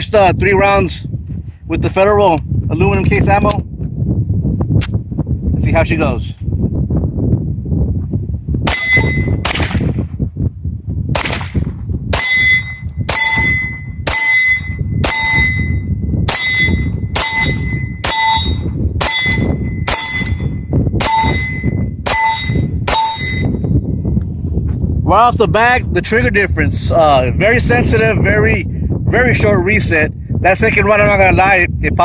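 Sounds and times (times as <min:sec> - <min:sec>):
wind rumble on microphone: 0:00.0 - 0:32.0
steel target ringing: 0:08.7 - 0:09.4, 0:12.2 - 0:23.8
pistol shots: 0:08.7 - 0:10.0, 0:11.2 - 0:12.4, 0:15.0 - 0:15.4.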